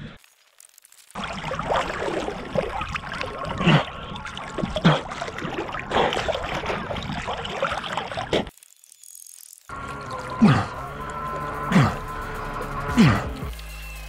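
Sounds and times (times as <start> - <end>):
water splashing from swimming: 1.1 - 8.5, 9.7 - 13.5
deep water plunks: 1.2 - 8.5, 9.7 - 13.4.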